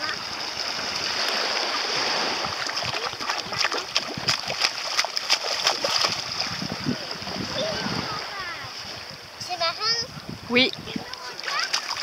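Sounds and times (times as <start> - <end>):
feet splashing in water: 0.0 - 8.2, 11.0 - 12.0
wash of water: 0.0 - 8.8, 10.9 - 12.0.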